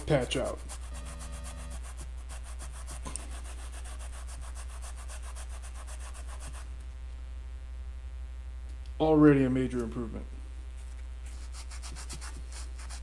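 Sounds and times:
sanding block rubbing: 0.0 - 6.7, 11.3 - 13.0.

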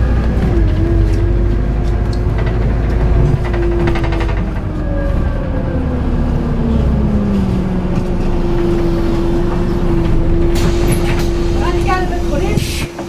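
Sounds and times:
bus engine and drivetrain whine: 0.0 - 13.0
rattling: 0.2 - 5.8.

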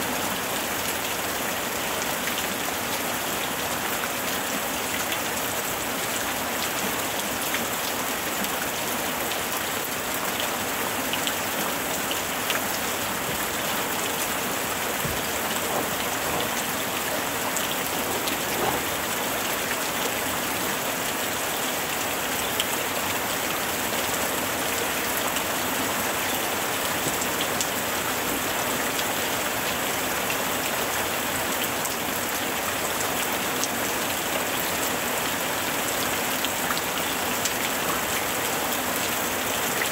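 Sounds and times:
steady rain hiss: 0.0 - 39.9
raindrop ticks: 12.1 - 19.8.

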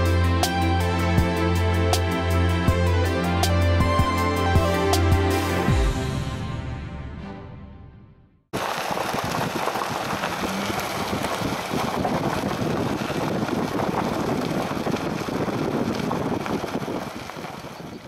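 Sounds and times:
vehicle road noise on dirt: 8.6 - 18.0
wind on microphone: 8.6 - 18.0.

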